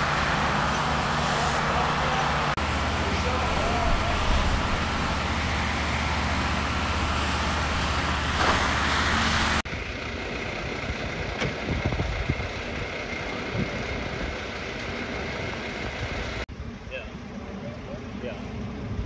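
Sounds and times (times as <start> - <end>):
water jet hissing: 0.0 - 9.6
fire engine pump motor humming: 0.0 - 19.0
fire trucks idling: 0.0 - 19.0.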